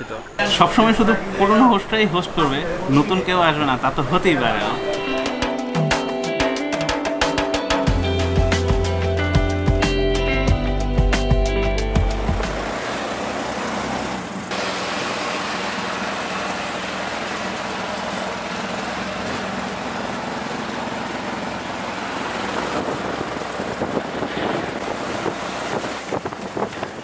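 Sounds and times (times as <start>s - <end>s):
small engine hum: 7.8s - 27.0s
wind and road noise: 11.9s - 27.0s.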